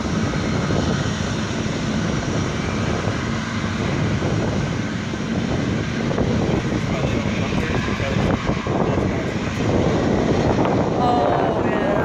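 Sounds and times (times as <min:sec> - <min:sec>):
jet engines rumbling: 0:00.0 - 0:12.0.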